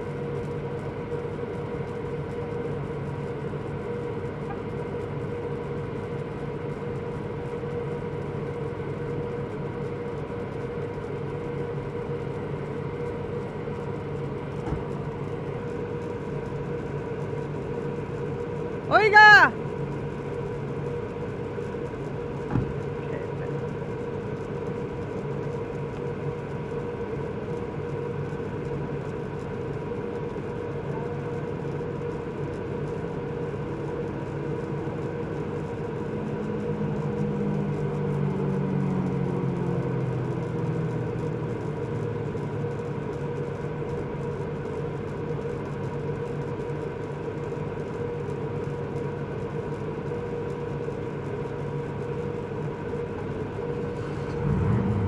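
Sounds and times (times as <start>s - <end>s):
thump: 14.6s - 14.9s, 22.5s - 22.8s
car engine idling: 52.8s - 55.0s.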